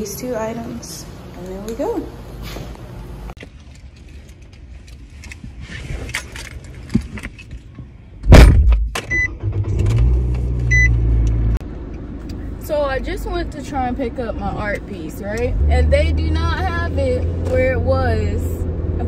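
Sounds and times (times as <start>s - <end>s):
car door slamming: 8.2s - 9.0s
car engine humming: 9.2s - 19.0s
short beeps: 10.7s - 11.0s.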